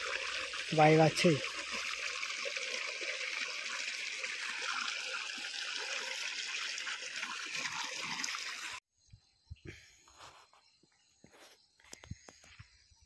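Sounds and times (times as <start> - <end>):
water gushing from pipe: 0.0 - 8.8.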